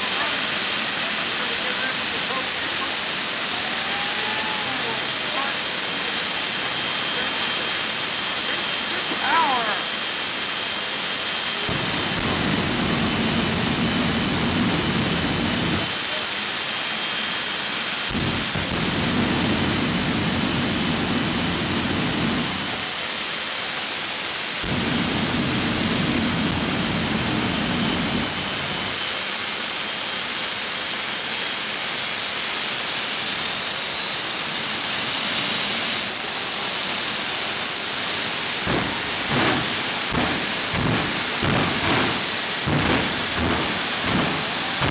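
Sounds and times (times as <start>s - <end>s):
turbine engine whine: 0.0s - 44.9s
afterburner rumble: 11.5s - 16.0s, 18.1s - 22.8s, 24.6s - 29.0s, 33.4s - 44.9s.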